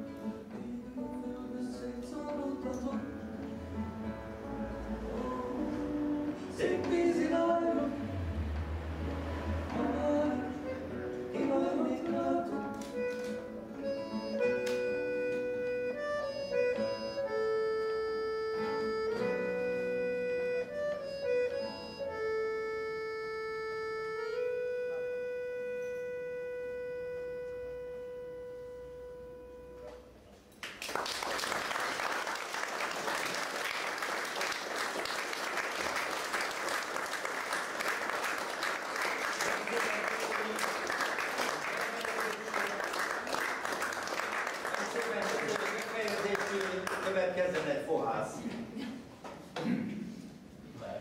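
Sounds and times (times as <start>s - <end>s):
instrumental melody of held notes: 12.8s - 30.4s
audience applause: 30.6s - 47.3s.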